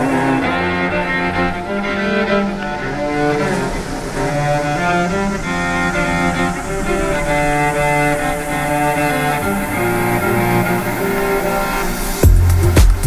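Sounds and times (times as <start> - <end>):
instrumental music with held notes: 0.0 - 13.0.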